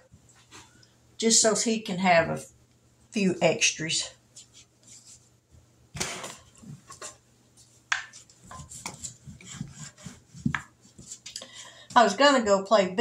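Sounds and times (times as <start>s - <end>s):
rolling pin rolling over dough: 6.2s - 12.1s
hands rubbing flour on plastic: 7.6s - 11.4s.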